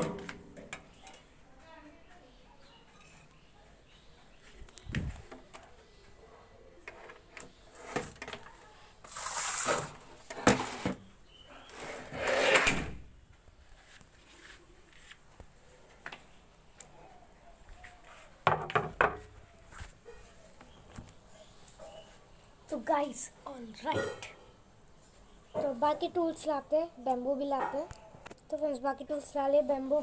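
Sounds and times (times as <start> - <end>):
scraping sliding sounds: 9.0 - 11.0, 11.7 - 12.9.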